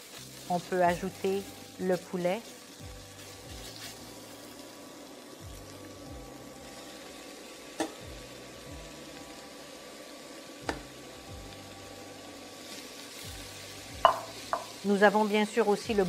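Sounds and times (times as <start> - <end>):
spatula scraping and stirring: 0.0 - 4.6
paste sizzling in a pot: 0.0 - 16.0
spatula knocking against pot: 14.0 - 14.7.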